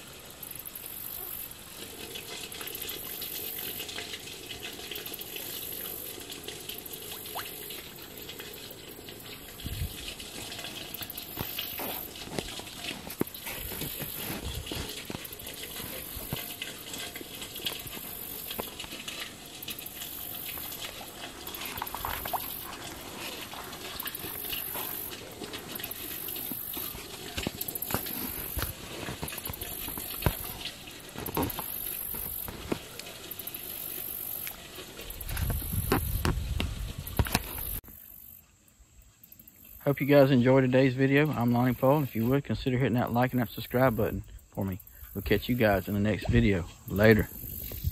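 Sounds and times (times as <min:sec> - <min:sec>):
fish splashing at water surface: 0:00.0 - 0:37.8.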